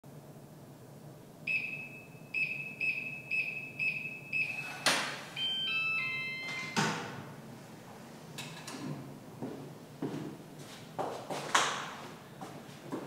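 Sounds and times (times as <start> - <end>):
keypad beeps: 1.5 - 6.8
electronic unlock melody: 1.5 - 7.1.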